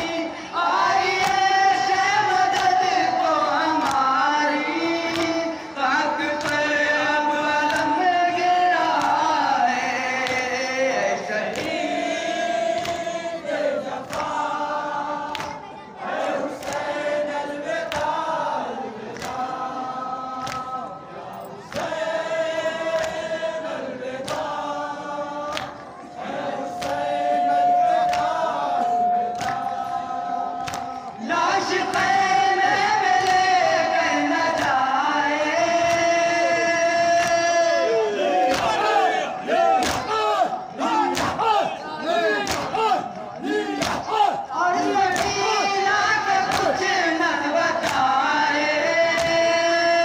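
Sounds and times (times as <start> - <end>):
men chanting a lament: 0.0 - 50.0.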